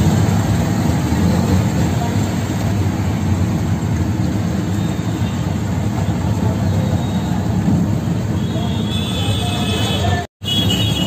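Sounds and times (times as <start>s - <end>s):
auto-rickshaw engine rumbling: 0.0s - 11.0s.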